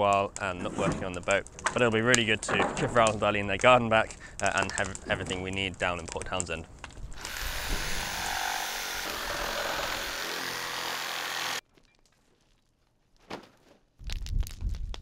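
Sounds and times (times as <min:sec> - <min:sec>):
reciprocating saw cutting plastic: 0:07.2 - 0:11.6.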